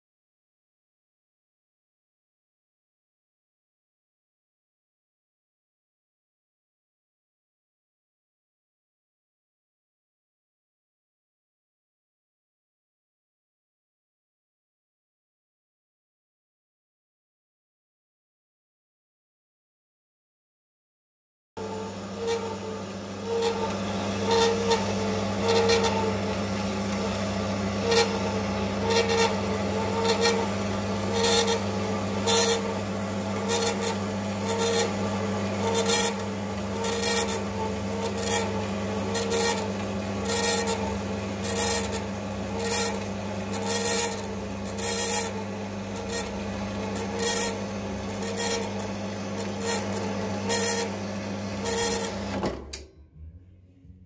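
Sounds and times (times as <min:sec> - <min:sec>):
saw rasping through metal: 0:21.6 - 0:52.4
motor hum: 0:21.6 - 0:54.0.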